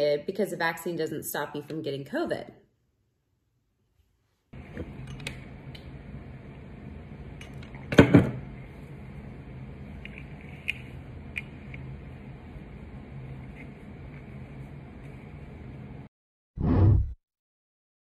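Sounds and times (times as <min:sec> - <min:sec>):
steady low hum: 0:04.6 - 0:16.1.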